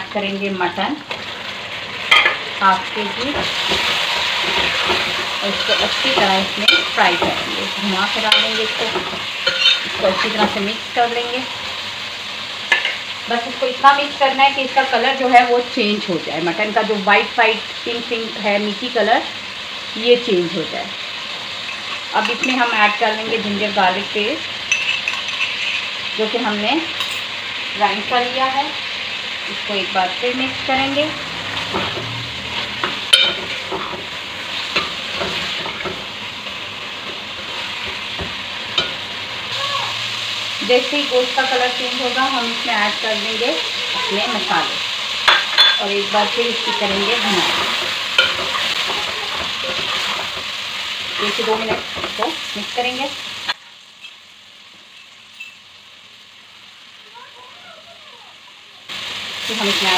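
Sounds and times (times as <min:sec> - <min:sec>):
meat sizzling in hot oil: 0:00.0 - 0:59.9
metal ladle scraping and clinking pot: 0:08.3 - 0:10.5, 0:24.7 - 0:25.9.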